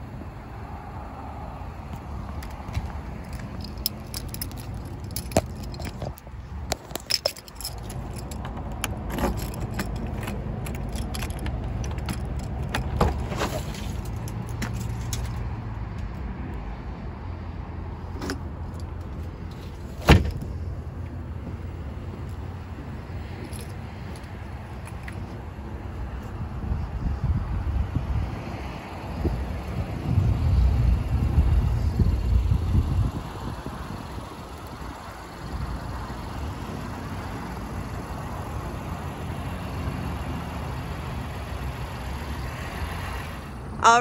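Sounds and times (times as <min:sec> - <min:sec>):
loud thump: 0:20.0 - 0:20.5.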